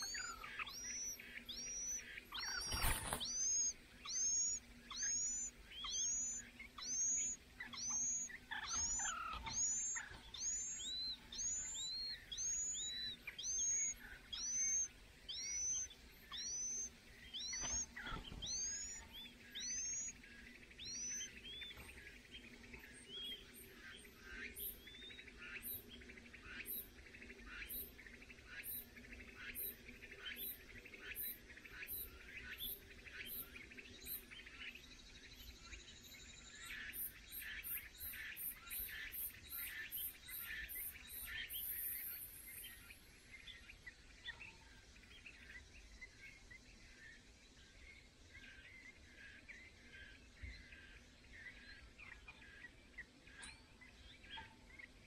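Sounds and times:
bird nestlings chirping: 0.0 - 25.8.

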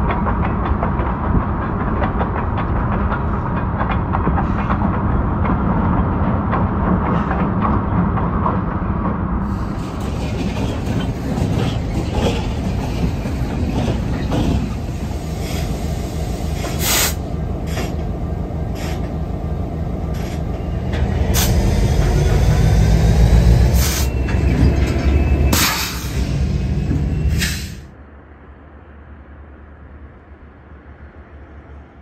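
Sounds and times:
diesel locomotive engine rumble: 0.0 - 32.0
wheels squealing on rail: 9.5 - 18.0, 18.7 - 19.1, 20.1 - 27.9.

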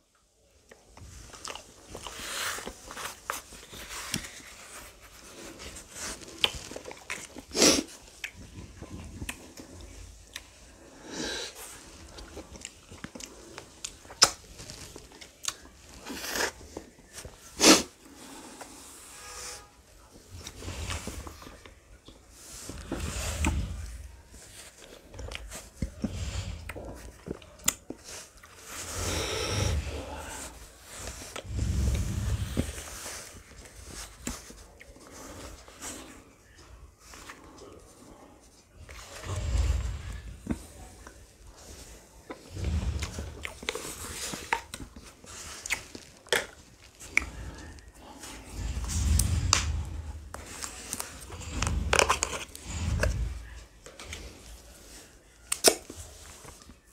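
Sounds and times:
person crunching and chewing: 5.3 - 11.0, 42.2 - 54.5
low rumbles: 31.4 - 32.9, 47.0 - 53.7.

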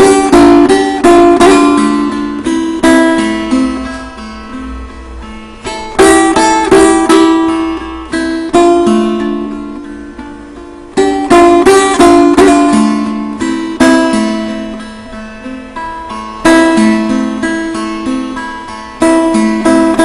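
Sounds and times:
plucked lute improvisation: 0.0 - 20.0.

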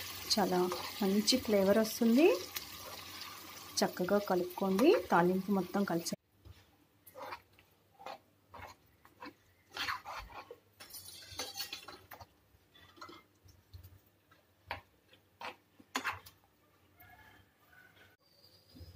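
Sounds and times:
spatula scraping pan: 0.2 - 1.4, 7.1 - 13.3, 15.4 - 16.4.

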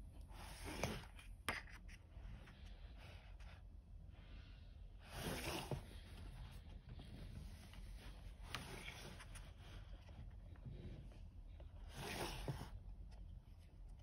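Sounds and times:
book pages turning: 5.1 - 10.6.

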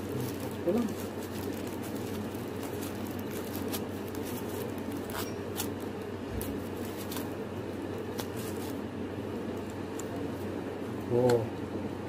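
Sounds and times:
packaging crackling and rustling: 0.0 - 8.8.

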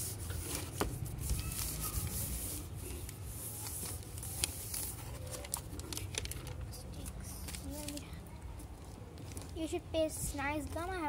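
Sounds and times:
paper rustling against cardboard: 0.0 - 8.1.

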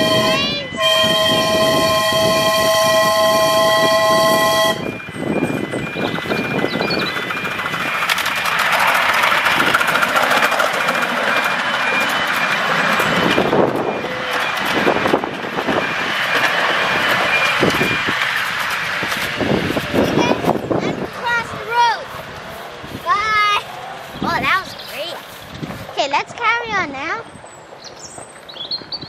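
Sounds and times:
steam locomotive whistle: 0.0 - 5.1
train running over track: 0.0 - 29.0
faint regular beeping: 4.9 - 8.8.

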